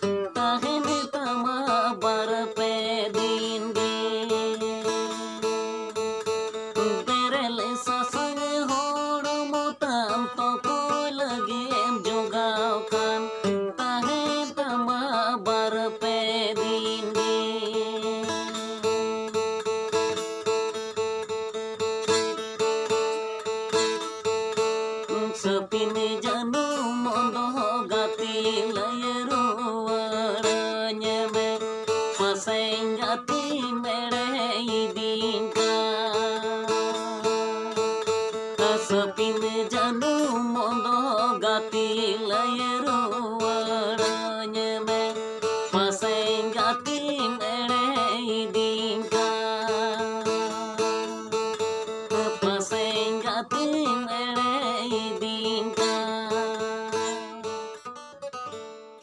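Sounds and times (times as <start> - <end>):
man singing: 0.0 - 5.2, 6.8 - 19.3, 25.1 - 37.9, 38.5 - 57.5
acoustic guitar: 0.0 - 59.0.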